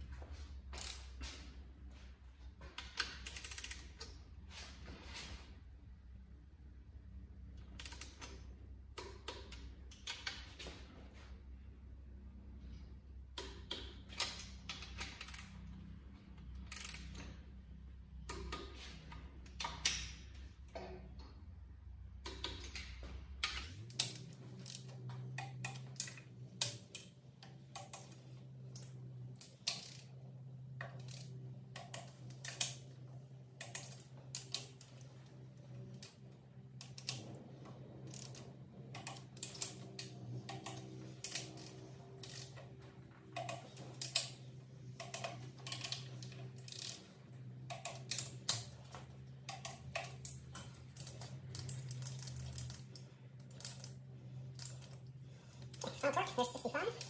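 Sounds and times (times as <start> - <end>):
steady low hum: 0.0 - 57.0
torque wrench ratcheting and clicking: 2.8 - 4.1, 7.7 - 8.4, 13.4 - 15.7, 16.6 - 17.3, 28.8 - 30.1, 38.1 - 42.6, 45.0 - 47.0.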